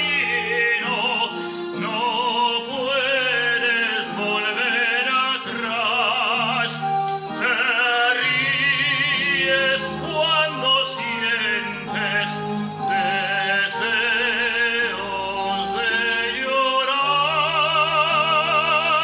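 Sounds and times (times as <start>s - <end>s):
instrumental accompaniment: 0.0s - 19.0s
man singing with vibrato: 0.0s - 19.0s.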